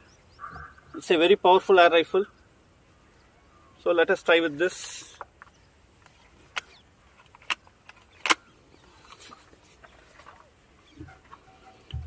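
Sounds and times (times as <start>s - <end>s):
air rifle metallic clicks: 5.1s - 10.5s.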